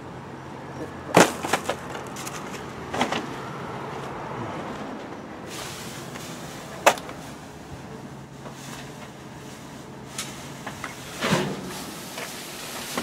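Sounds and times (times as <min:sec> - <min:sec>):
plastic bags rustling: 0:01.2 - 0:03.2, 0:05.4 - 0:13.0.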